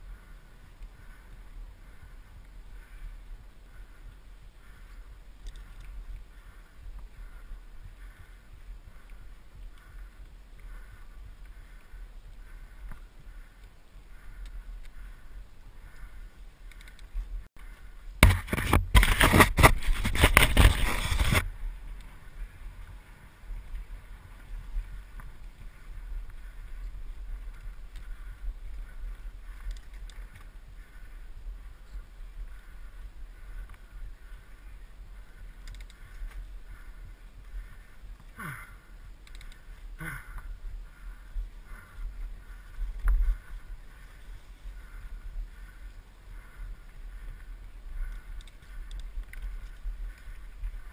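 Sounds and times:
bike tyres rolling on dirt: 0:00.0 - 0:50.9
bike rattle: 0:16.0 - 0:31.1.

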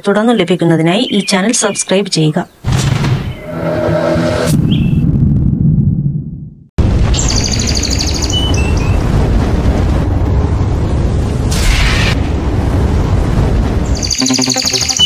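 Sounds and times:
loud steady rumbling: 0:06.8 - 0:15.0
bird-like chirps: 0:07.2 - 0:09.0, 0:14.0 - 0:15.0.

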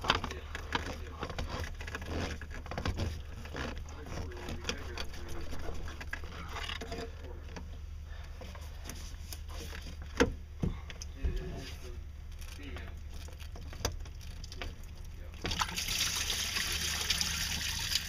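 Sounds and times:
hose scrapes and knocks: 0:00.0 - 0:07.2
steady low hum: 0:00.0 - 0:15.6.

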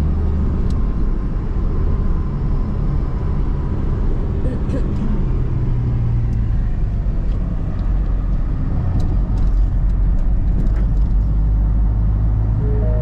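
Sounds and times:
car engine and road rumble: 0:00.0 - 0:13.0.

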